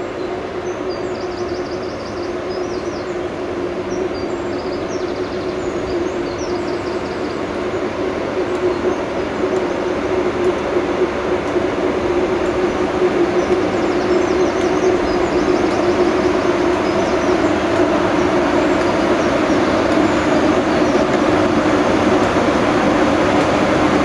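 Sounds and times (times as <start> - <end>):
electric locomotive hum: 0.0 - 24.0
small birds chirping: 0.1 - 7.9, 13.0 - 21.2.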